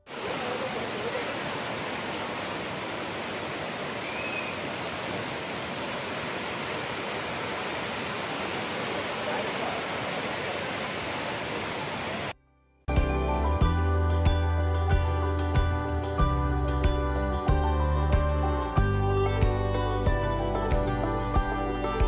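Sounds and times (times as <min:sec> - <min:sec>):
waterfall pouring: 0:00.0 - 0:12.3.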